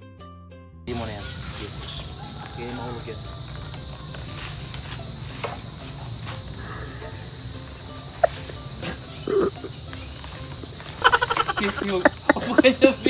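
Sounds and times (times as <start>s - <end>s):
insect chorus drone: 0.9s - 13.0s
person laughing: 8.0s - 9.9s, 10.6s - 13.0s.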